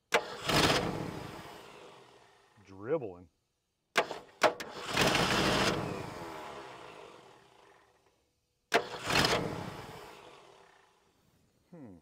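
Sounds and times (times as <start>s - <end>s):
engine starter cranking: 0.1s - 2.4s, 4.0s - 7.8s, 8.7s - 10.9s.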